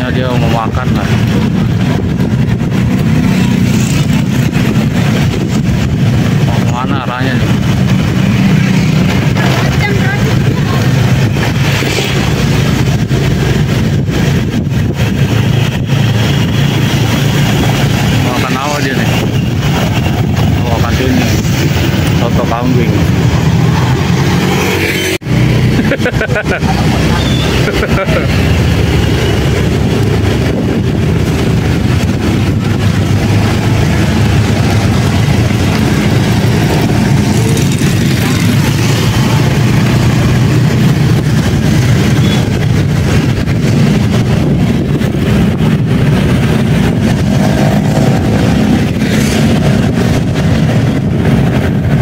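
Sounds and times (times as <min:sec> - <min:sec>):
wind rushing over microphone: 0:00.0 - 0:52.0
scooter engine running: 0:23.0 - 0:52.0.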